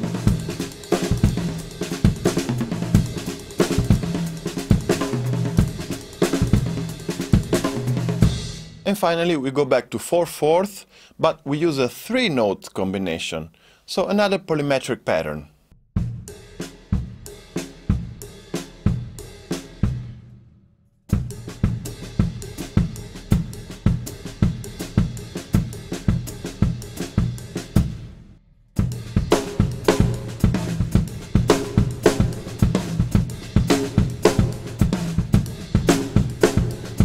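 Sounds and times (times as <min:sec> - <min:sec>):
acoustic drum kit groove: 0:00.0 - 0:09.2, 0:16.0 - 0:20.2, 0:21.1 - 0:37.0.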